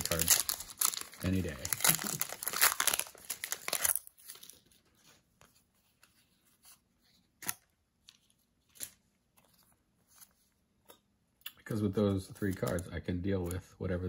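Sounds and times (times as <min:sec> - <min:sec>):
foil wrapper crinkling and tearing: 0:00.0 - 0:04.8
handling trading cards: 0:00.0 - 0:13.8.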